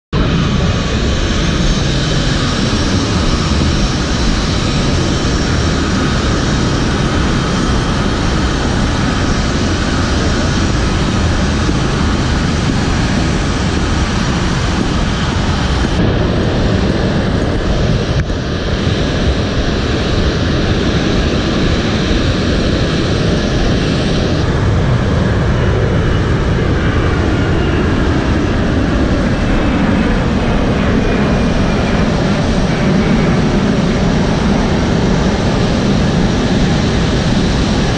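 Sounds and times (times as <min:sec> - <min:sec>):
aircraft engines roaring: 0:00.1 - 0:37.9
high engine whine: 0:00.1 - 0:37.9.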